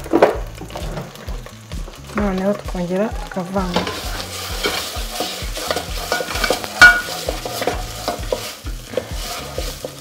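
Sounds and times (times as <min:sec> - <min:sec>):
greens frying: 0:00.0 - 0:10.0
wooden spoon scraping pot: 0:03.6 - 0:10.0
spoon knocking against pot: 0:06.1 - 0:08.4.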